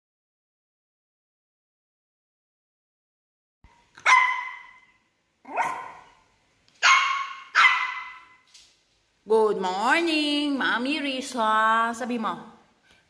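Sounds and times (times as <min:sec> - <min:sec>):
puppy yapping: 0:04.0 - 0:06.2, 0:06.8 - 0:08.4.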